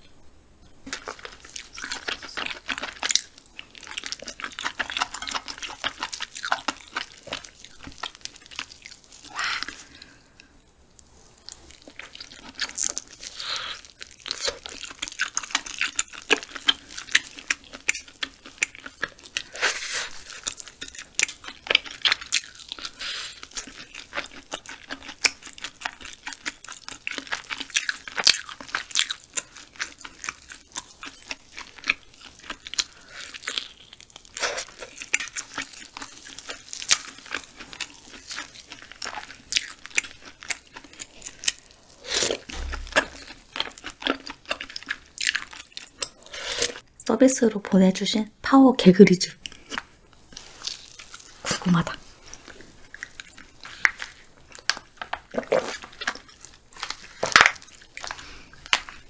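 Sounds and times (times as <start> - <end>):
chewing with crunches: 0.8 - 46.8, 49.4 - 59.0.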